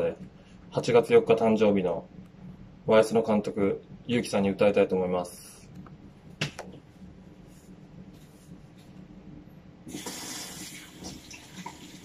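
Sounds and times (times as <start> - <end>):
faint background hum: 0.0 - 12.0
water running into sink: 9.9 - 12.0.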